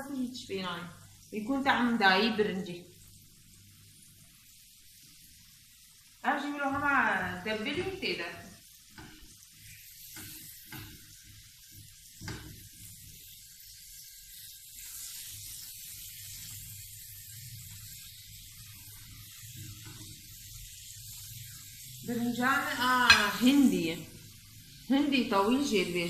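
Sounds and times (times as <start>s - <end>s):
food sizzling in grill tray: 0.0s - 26.0s
metal spatula scraping: 16.3s - 23.8s.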